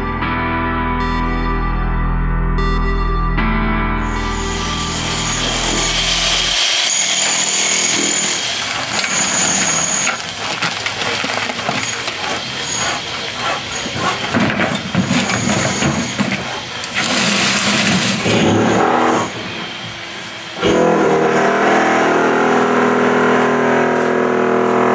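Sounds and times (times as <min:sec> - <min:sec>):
rushing noise: 0:04.0 - 0:24.7
knocks and scrapes: 0:05.4 - 0:19.7
rubble clattering: 0:07.2 - 0:18.6.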